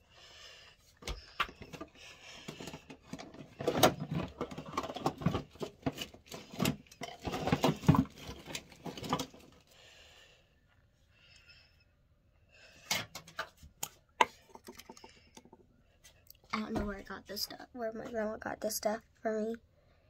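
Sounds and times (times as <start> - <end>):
plastic items clattering: 1.0 - 9.7.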